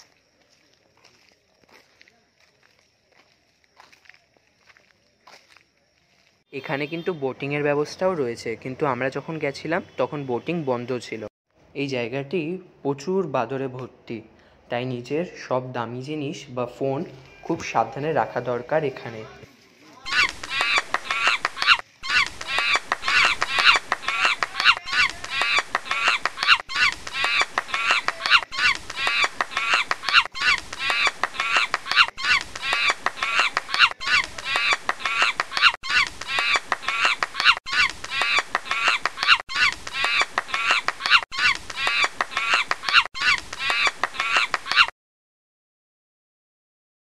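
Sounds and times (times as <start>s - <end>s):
high-pitched animal calls: 20.0s - 44.9s.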